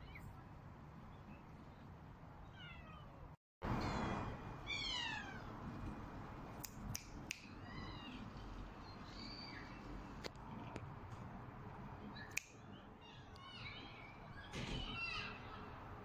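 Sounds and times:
cat meowing: 4.6 - 5.5.

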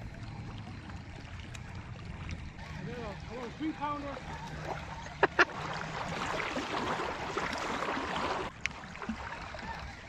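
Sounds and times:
reel spool whirring: 0.0 - 6.3.

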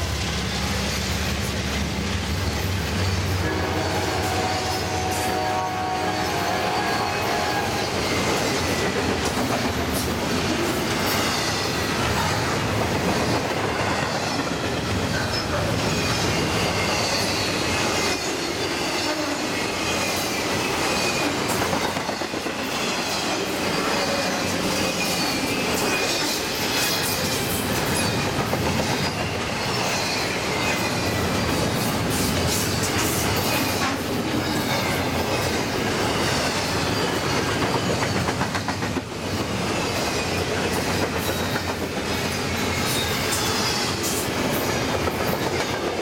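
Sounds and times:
diesel locomotive drone: 0.0 - 46.0
train wheels rumbling on rail: 0.0 - 46.0
high wheel squeal: 2.4 - 8.9, 13.7 - 33.8.

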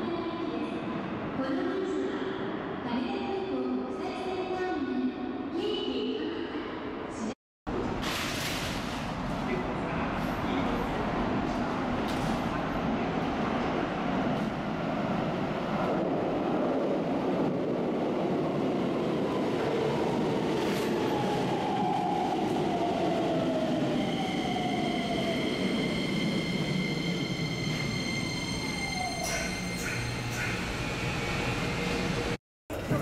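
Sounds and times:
train braking whine: 24.2 - 32.4.

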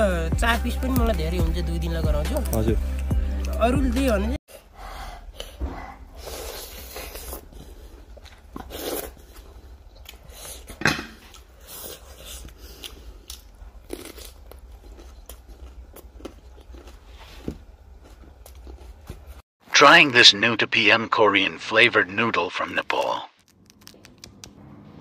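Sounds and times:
crunching and chewing lettuce: 6.3 - 19.4, 23.4 - 24.6.

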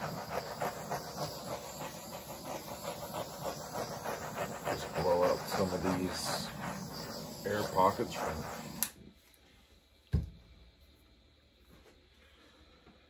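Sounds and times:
paint swishing on canvas: 0.0 - 8.8.

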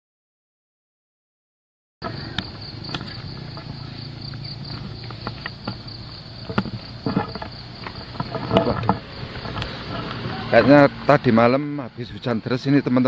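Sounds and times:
low outdoor rumble: 2.0 - 12.6
insects chorus: 2.0 - 13.0
footsteps on muddy path: 2.2 - 10.7.

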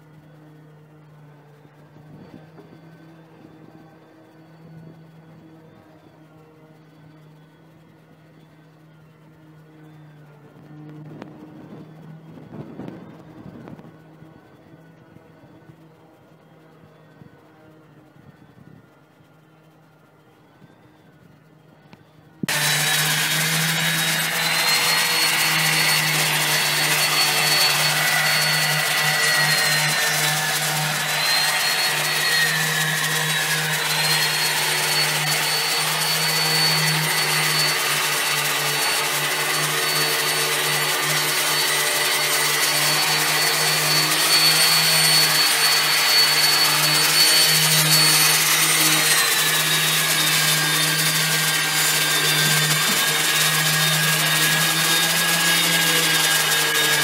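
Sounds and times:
machine motor hum and whine: 0.0 - 57.0.

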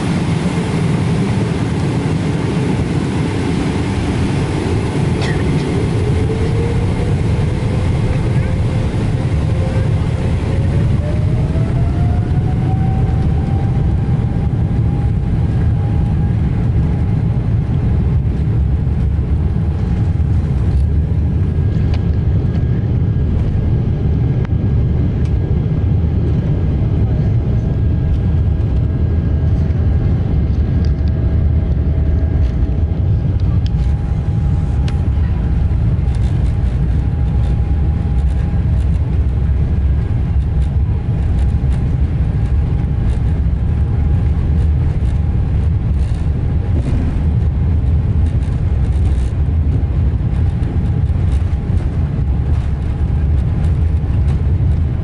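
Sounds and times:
jet engine rumble in cabin: 0.0 - 55.0
thin jet engine whine: 0.0 - 55.0.

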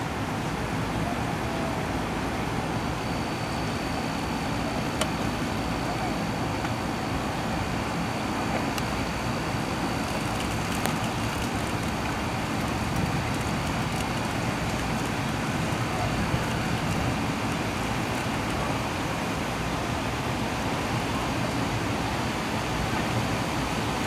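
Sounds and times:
heavy rain falling: 0.0 - 24.0.

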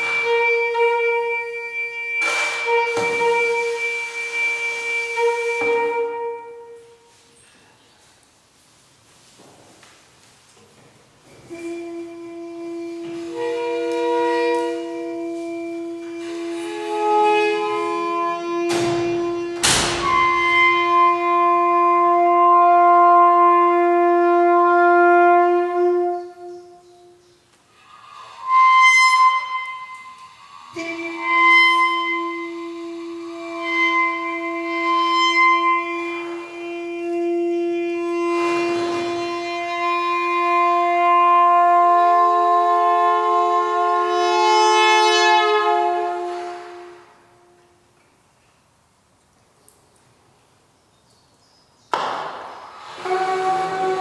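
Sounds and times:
wind instrument long held tones: 0.0 - 7.3, 11.3 - 48.0, 52.2 - 54.0
sharp cracks: 51.9 - 53.0.

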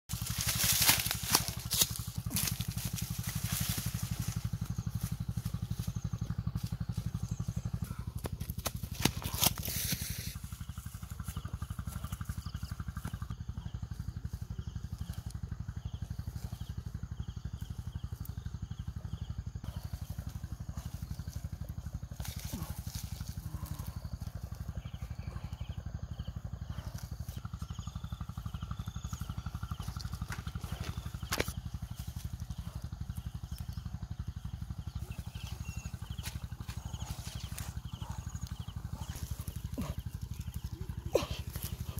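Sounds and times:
footsteps in dry leaves: 0.1 - 12.9, 19.9 - 24.2, 35.2 - 41.9
steady low hum: 0.1 - 41.9.

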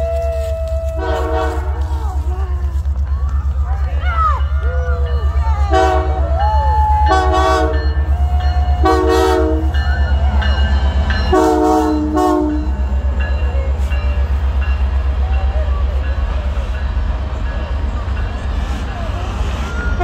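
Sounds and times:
locomotive air horn blasts: 0.0 - 1.9, 5.7 - 6.2, 7.1 - 8.0, 8.8 - 9.8, 11.3 - 12.7
passing train rumble: 0.0 - 20.0.

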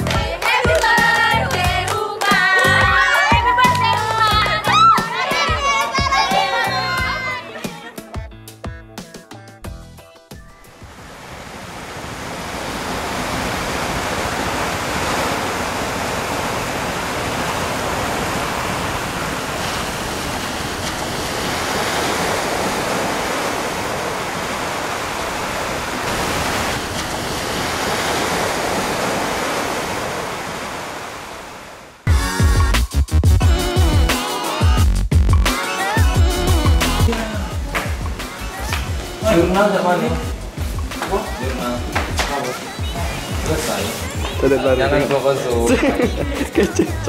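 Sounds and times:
sea surf against rocks: 10.7 - 32.1, 37.0 - 47.0.

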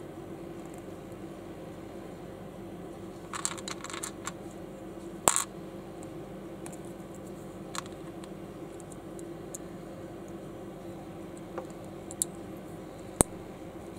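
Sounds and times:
steady low hum: 0.0 - 13.9
plastic bricks clicking: 3.3 - 4.4.

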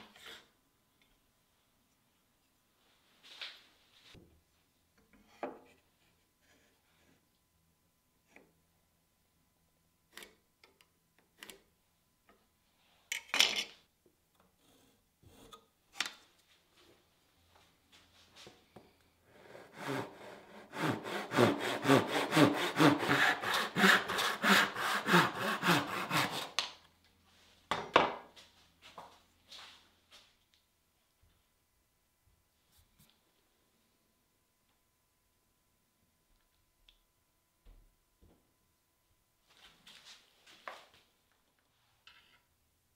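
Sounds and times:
hand saw cutting wood: 19.3 - 26.6.

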